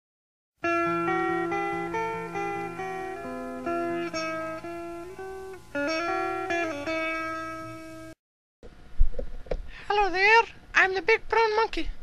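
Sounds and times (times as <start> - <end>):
picked guitar melody: 0.6 - 8.2.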